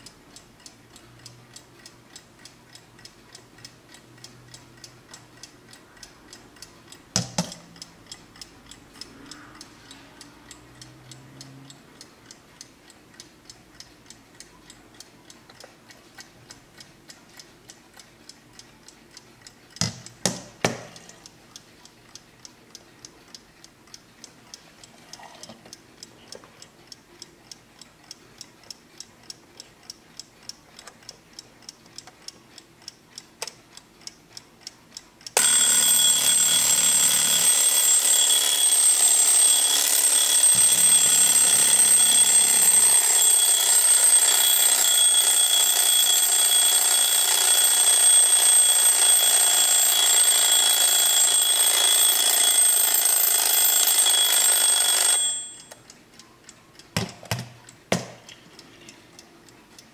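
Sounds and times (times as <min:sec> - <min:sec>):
alarm clock ticking: 0:00.0 - 0:59.9
alarm clock ringing: 0:35.4 - 0:55.8.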